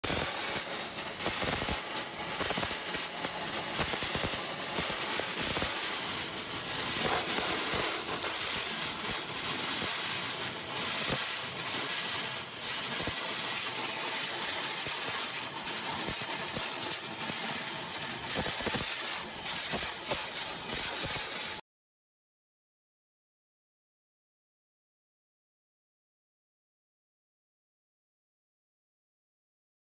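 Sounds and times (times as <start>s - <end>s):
abrasive blasting hiss: 0.0s - 21.6s.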